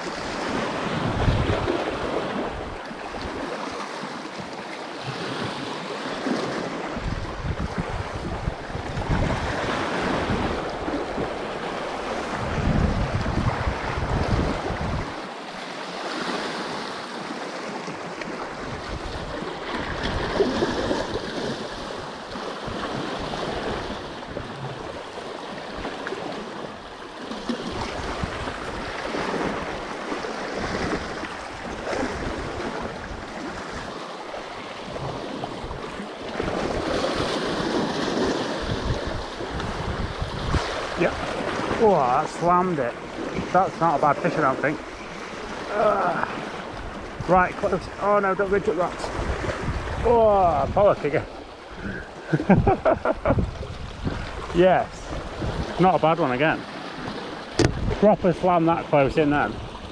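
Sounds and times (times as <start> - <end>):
wind buffeting microphone: 0.0 - 3.6, 6.8 - 15.3, 27.5 - 34.0, 34.8 - 43.7, 44.3 - 56.0, 57.0 - 58.3
sea waves against rocks: 0.0 - 59.9.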